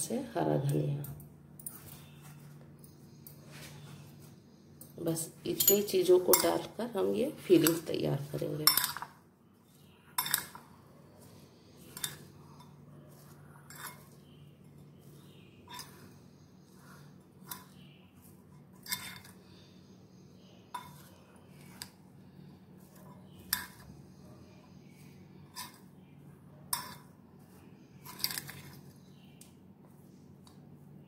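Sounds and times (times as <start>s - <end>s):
metal spoon clinking glass bowl: 5.5s - 6.7s, 8.6s - 9.1s, 10.2s - 10.6s, 11.9s - 14.2s, 26.7s - 27.1s.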